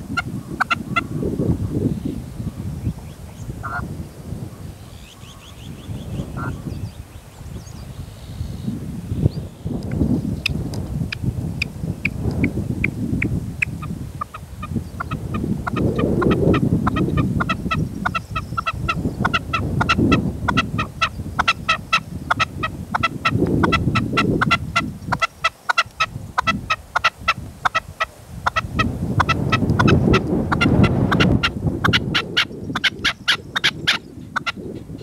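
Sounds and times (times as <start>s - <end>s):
wind buffeting microphone: 0.0s - 35.0s
partridge calling: 0.2s - 1.2s, 4.9s - 7.0s, 12.0s - 35.0s.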